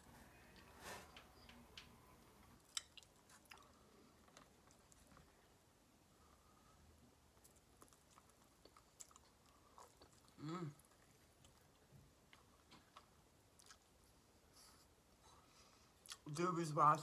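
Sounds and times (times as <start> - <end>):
chewing and biting: 7.4 - 13.9
person humming: 10.4 - 10.8.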